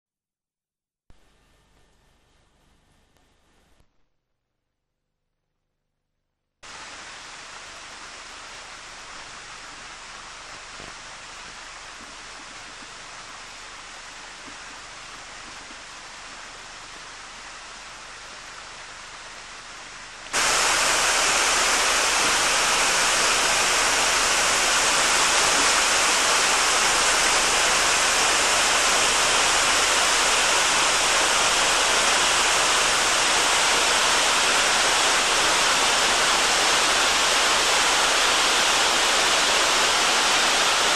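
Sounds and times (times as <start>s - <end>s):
water rushing over weir: 20.3s - 40.9s.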